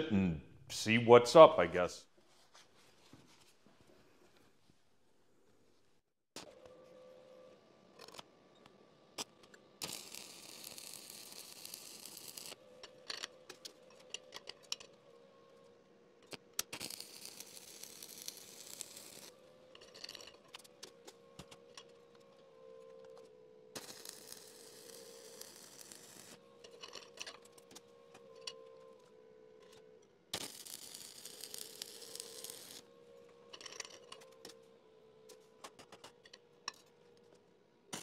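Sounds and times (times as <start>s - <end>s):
welding arc crackling: 9.8s - 12.6s, 16.6s - 19.3s, 23.8s - 26.4s, 30.4s - 32.8s.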